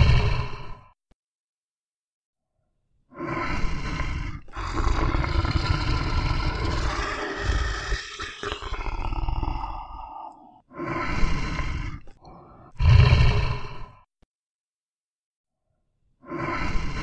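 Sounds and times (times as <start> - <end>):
bear growling: 0.0 - 0.8, 3.2 - 14.0.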